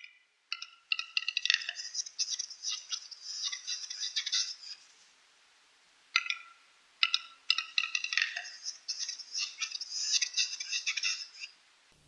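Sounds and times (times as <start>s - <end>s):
scraping bird song: 1.6s - 4.9s, 7.8s - 11.5s.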